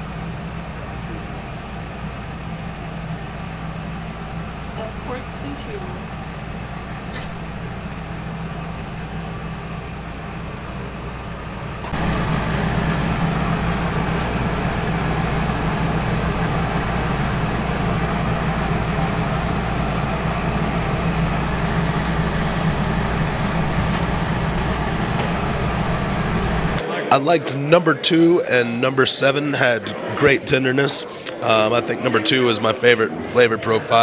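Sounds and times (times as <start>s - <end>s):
machinery drone: 0.0s - 34.0s
noisy hiss: 0.0s - 34.0s.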